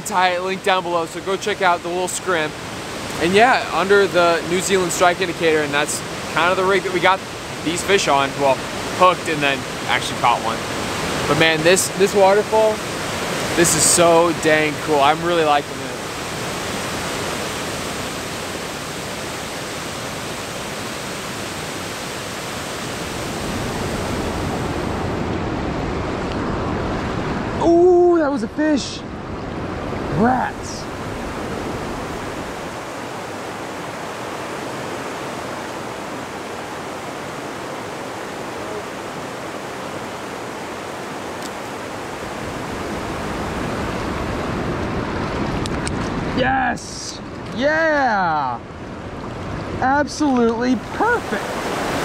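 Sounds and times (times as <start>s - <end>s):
waterfall rushing into pool: 0.0s - 28.9s, 30.0s - 48.6s, 49.8s - 52.0s.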